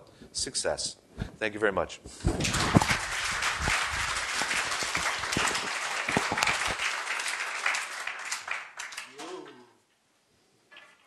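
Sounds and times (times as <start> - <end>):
audience applauding: 2.3 - 9.3.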